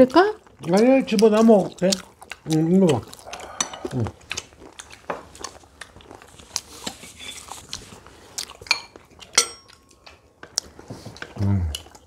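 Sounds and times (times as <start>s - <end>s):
chewing: 0.0s - 12.0s
cutlery clicking against plates: 8.7s - 10.6s.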